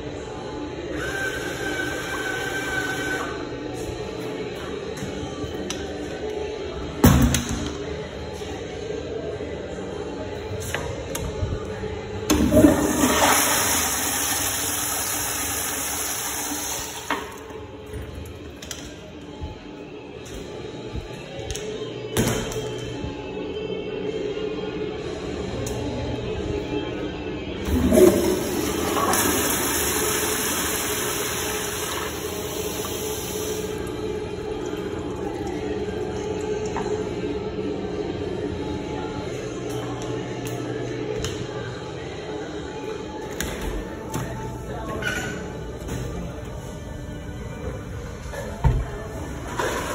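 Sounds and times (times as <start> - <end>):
toilet flushing: 12.3 - 17.5, 27.6 - 35.7, 49.0 - 49.9.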